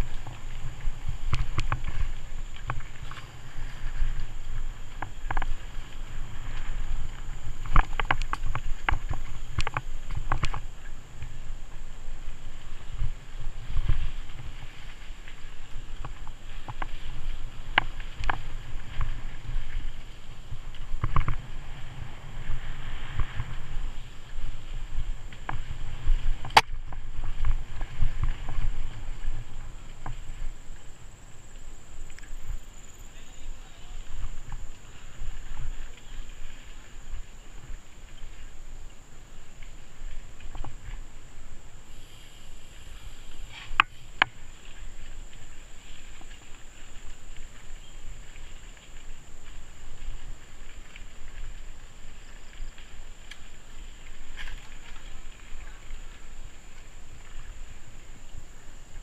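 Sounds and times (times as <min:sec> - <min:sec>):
bike tyre and rattle noise: 0:00.0 - 0:59.0.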